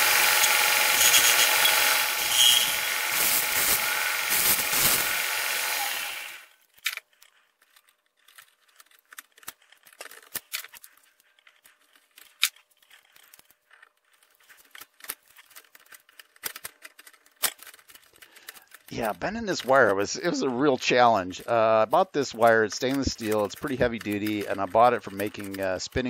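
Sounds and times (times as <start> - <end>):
disc sander running: 0.0 - 6.6, 19.3 - 26.0.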